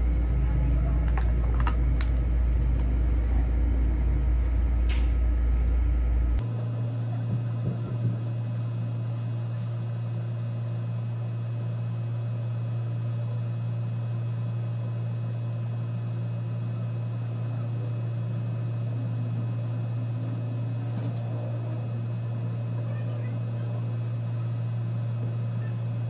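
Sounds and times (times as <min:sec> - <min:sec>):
room background hum: 0:00.0 - 0:26.0.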